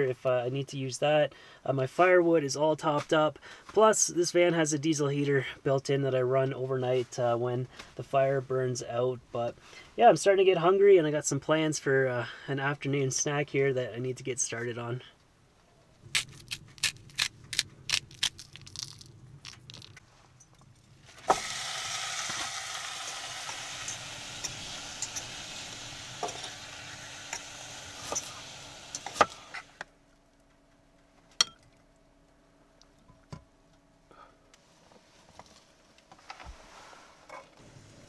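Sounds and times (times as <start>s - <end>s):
meat sizzling in a saucepan: 21.2s - 29.8s.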